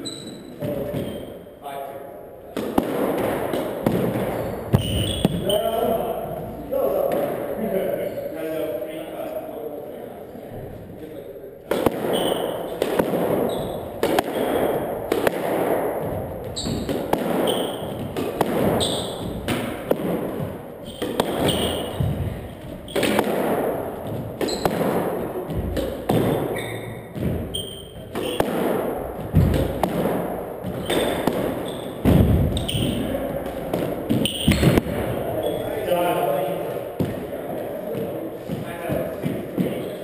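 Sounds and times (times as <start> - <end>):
shoes squeaking on hardwood floor: 0.0 - 1.6, 3.5 - 6.7, 12.0 - 14.9, 16.0 - 23.2, 23.9 - 29.9, 30.6 - 35.9, 37.0 - 40.0
squash ball cracking off walls: 2.5 - 5.6, 11.6 - 40.0.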